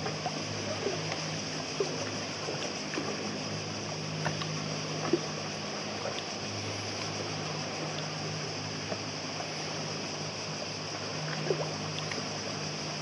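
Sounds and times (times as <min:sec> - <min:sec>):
steady low hum: 0:00.0 - 0:13.0
water lapping against hull: 0:00.0 - 0:13.0.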